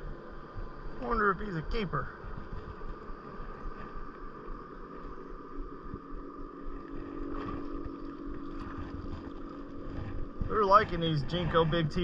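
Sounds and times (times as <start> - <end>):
outboard motor running: 0.0 - 12.0
steady hum: 0.0 - 12.0
wind on microphone: 6.7 - 12.0.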